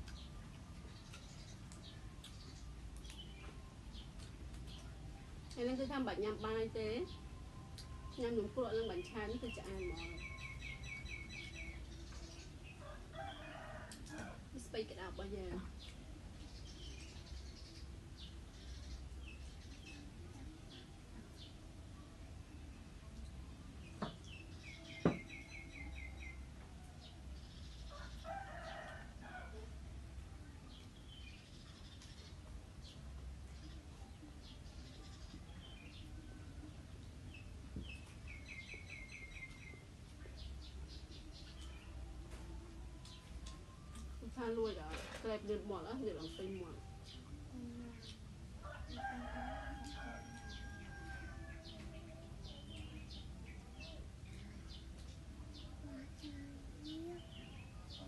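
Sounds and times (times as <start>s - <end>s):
small birds chirping: 0.0s - 58.0s
rooster crowing: 48.6s - 51.6s.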